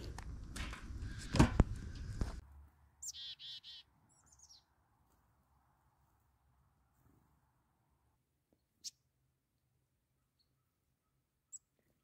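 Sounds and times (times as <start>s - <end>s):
small bird calling: 3.0s - 4.7s.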